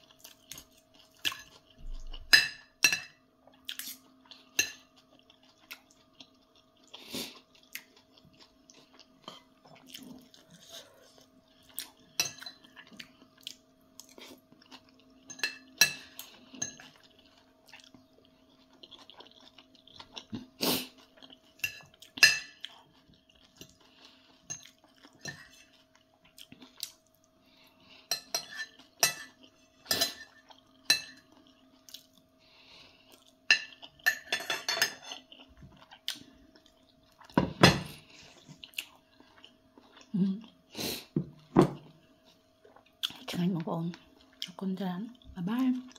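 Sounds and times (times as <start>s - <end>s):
faint steady hum: 0.0s - 45.9s
chewing: 3.5s - 34.3s, 35.0s - 40.6s, 41.4s - 45.9s
cutlery scraping a ceramic plate: 25.2s - 25.8s, 28.1s - 31.2s, 33.5s - 35.3s.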